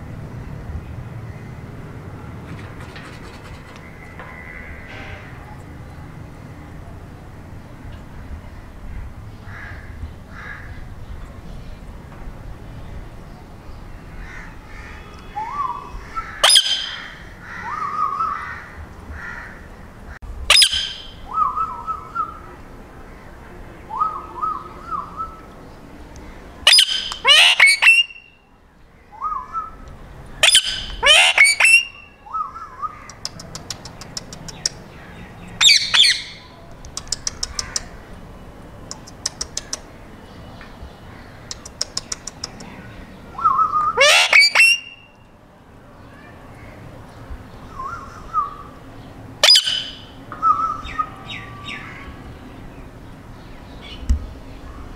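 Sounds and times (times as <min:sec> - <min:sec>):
soft bird chattering: 0:02.5 - 0:04.8, 0:32.9 - 0:38.0, 0:38.8 - 0:40.0, 0:41.1 - 0:45.2
parakeets squawking: 0:14.2 - 0:19.5, 0:26.6 - 0:28.3, 0:30.4 - 0:32.1, 0:35.6 - 0:36.4, 0:43.5 - 0:45.0, 0:49.4 - 0:50.1
quick clicks: 0:33.1 - 0:34.8, 0:36.8 - 0:37.9, 0:38.9 - 0:39.9, 0:41.5 - 0:42.7.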